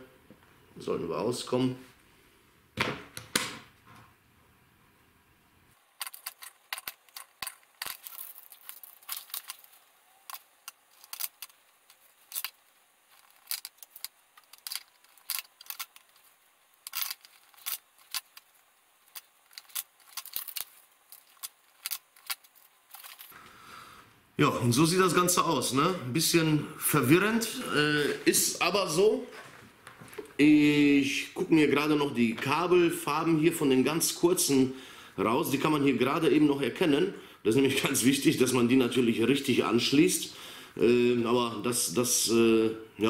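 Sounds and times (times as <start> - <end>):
plastic connectors clattering: 6.0 - 23.4.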